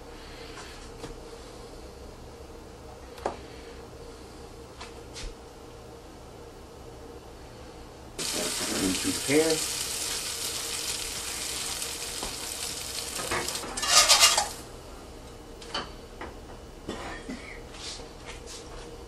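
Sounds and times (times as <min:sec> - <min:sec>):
stove hissing: 0:08.2 - 0:15.1
utensil clinking against pans: 0:13.2 - 0:14.6.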